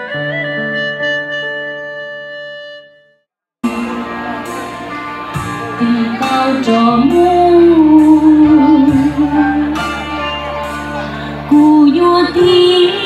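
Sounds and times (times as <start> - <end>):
steady chords and guitar: 3.6 - 13.0
woman singing into a microphone: 5.7 - 10.5, 11.2 - 13.0.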